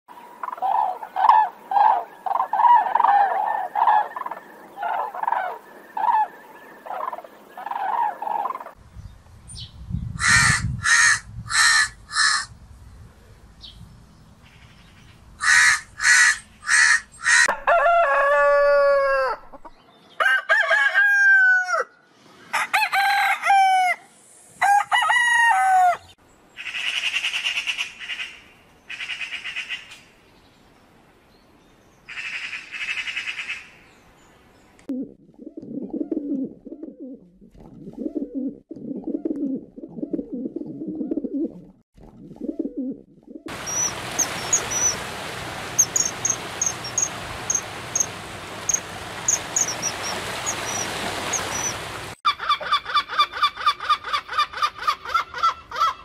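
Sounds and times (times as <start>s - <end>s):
crow cawing: 10.2s - 12.5s, 15.4s - 17.5s
flamingos honking: 43.5s - 53.0s
harsh rattling bird chatter: 45.8s - 51.8s.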